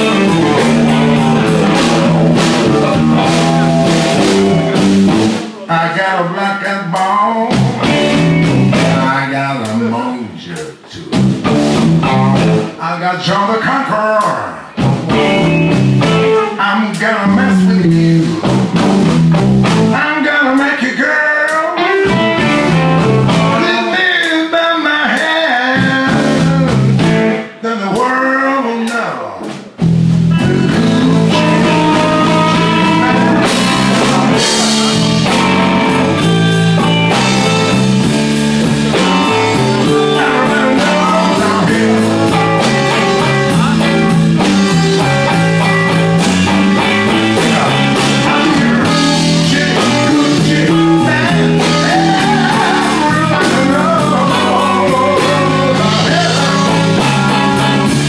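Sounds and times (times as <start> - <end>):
drum kit: 0.0 - 5.7, 7.0 - 9.8, 10.5 - 12.8, 14.2 - 20.7, 21.5 - 24.5, 25.1 - 27.4, 28.8 - 58.0
person singing: 0.0 - 11.2, 16.0 - 18.6, 19.7 - 29.6, 30.3 - 58.0
electric guitars: 0.0 - 12.8, 14.0 - 27.6, 29.4 - 58.0
bass guitar: 0.0 - 58.0.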